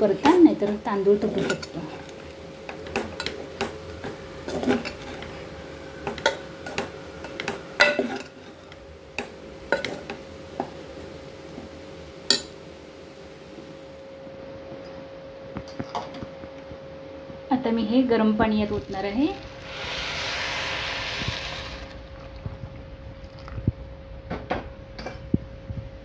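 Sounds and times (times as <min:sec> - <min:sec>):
faint steady hum: 0:00.0 - 0:26.0
spoon scraping a pot: 0:02.7 - 0:10.2.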